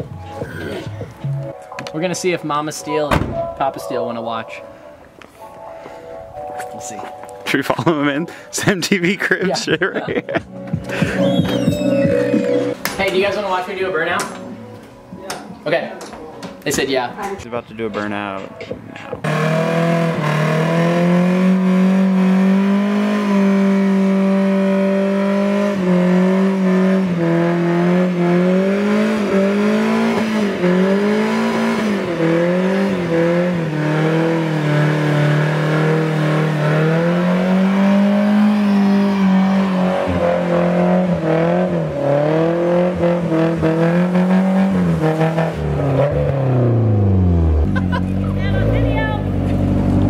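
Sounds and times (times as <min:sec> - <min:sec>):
tyres screeching: 0:00.1 - 0:01.5, 0:10.8 - 0:12.9
car engine revving: 0:18.6 - 0:50.0.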